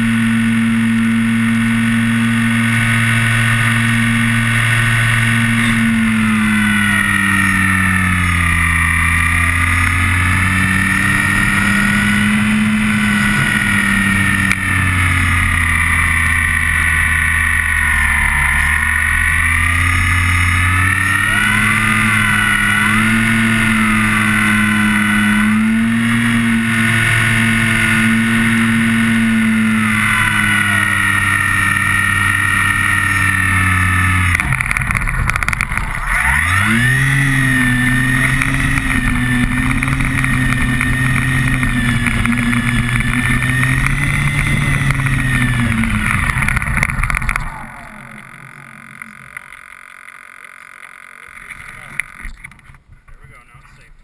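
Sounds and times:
electric motor and propeller whine: 0.0s - 52.9s.

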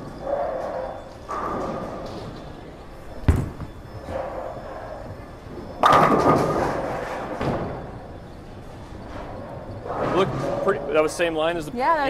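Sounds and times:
bowling ball rolling: 0.0s - 11.4s
bowling pins crashing: 3.2s - 4.4s, 5.6s - 8.1s.

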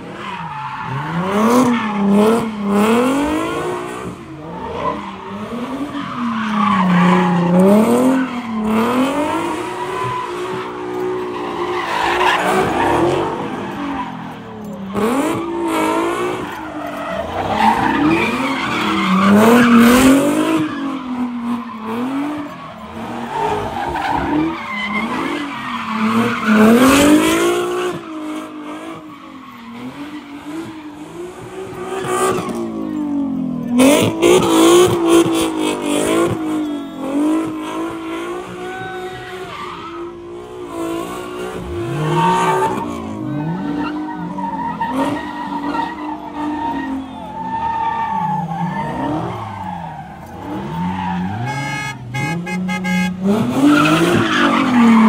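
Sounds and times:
car engines revving: 0.0s - 55.0s.

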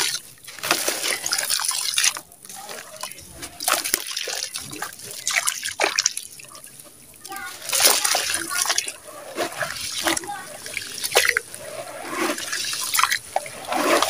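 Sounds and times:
water dripping and splashing: 0.0s - 14.0s
wet sand squelching by hand: 7.3s - 14.0s.

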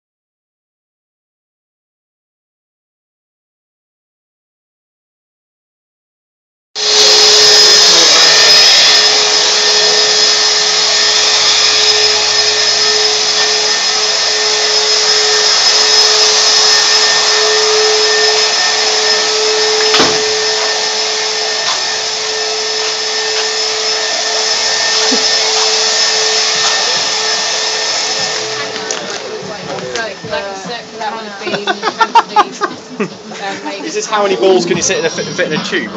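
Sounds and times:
shop vacuum running: 6.8s - 35.9s
sharp knock: 19.8s - 20.7s.

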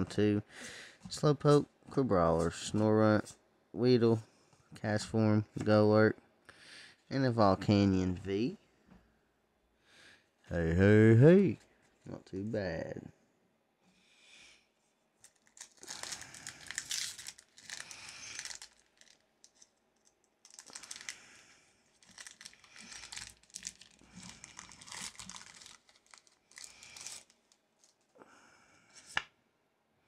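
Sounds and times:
foil wrapper crinkling and tearing: 15.2s - 21.3s, 21.9s - 28.1s.

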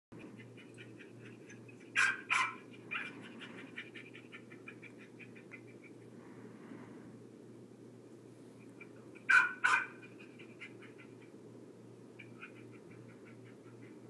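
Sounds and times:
dog barking: 2.0s - 3.8s, 9.2s - 10.8s.

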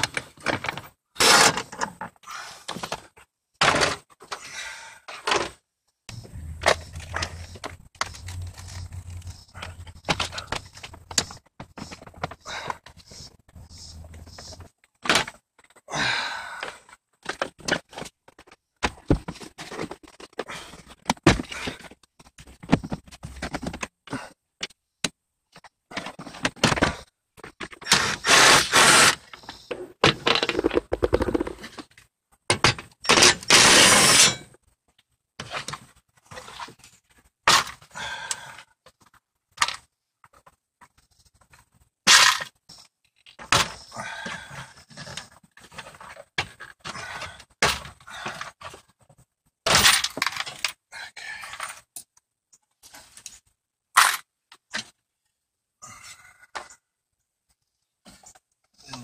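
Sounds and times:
plastic trim scraping: 6.2s - 12.0s.

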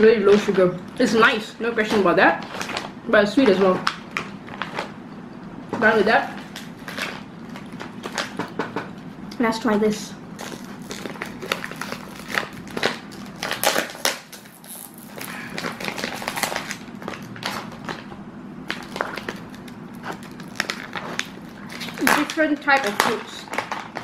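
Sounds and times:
plastic bag crinkling: 10.3s - 24.0s.

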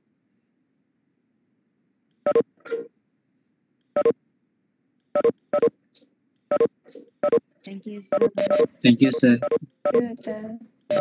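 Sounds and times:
short electronic beeps: 2.3s - 2.8s, 5.2s - 5.7s, 6.5s - 7.4s, 8.1s - 10.0s.

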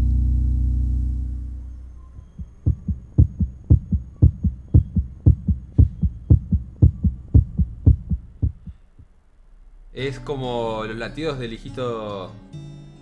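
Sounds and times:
fetal heartbeat thumps: 2.4s - 9.1s.

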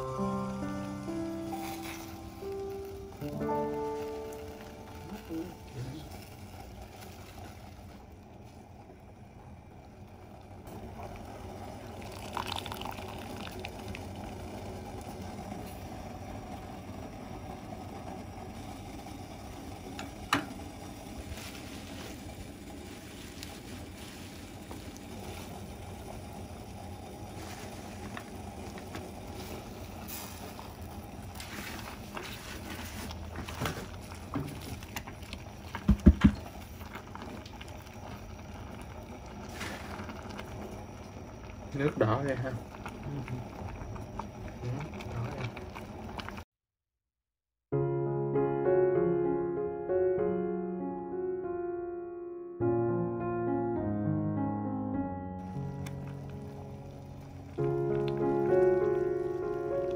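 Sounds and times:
pot boiling: 0.0s - 46.5s, 55.4s - 59.9s
knocks: 35.8s - 36.4s.

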